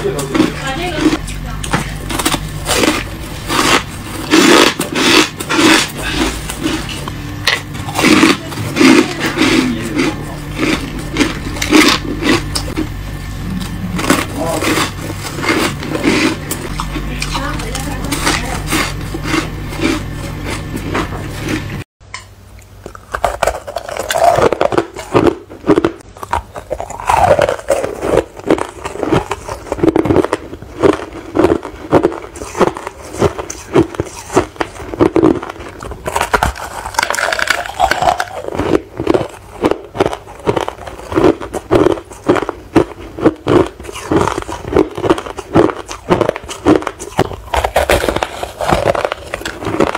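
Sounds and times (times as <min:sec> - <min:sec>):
ice being chewed: 0:00.0 - 0:21.8, 0:22.6 - 0:49.9
steady low hum: 0:00.0 - 0:49.9.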